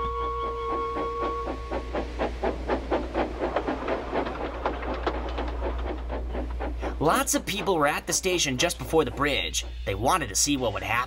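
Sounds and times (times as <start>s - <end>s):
steam locomotive chuffing: 0.0s - 11.0s.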